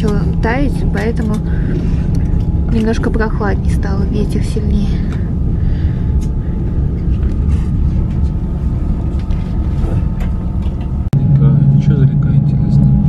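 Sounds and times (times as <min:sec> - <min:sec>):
faint steady whine: 0:00.0 - 0:13.0.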